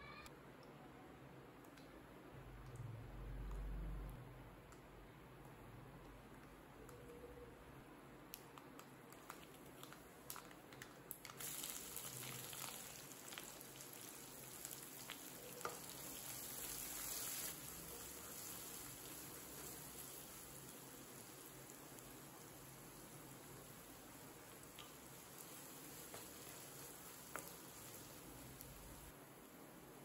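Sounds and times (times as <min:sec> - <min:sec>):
spices crackling in hot oil: 0:08.6 - 0:30.0
vegetables sizzling in oil: 0:11.4 - 0:29.6.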